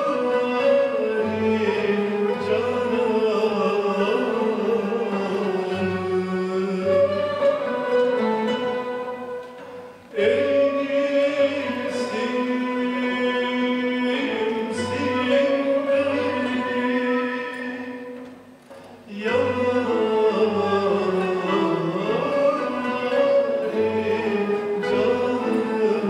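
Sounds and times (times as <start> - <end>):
oud kanun and violins ensemble: 0.0 - 26.0
voices singing: 19.1 - 26.0.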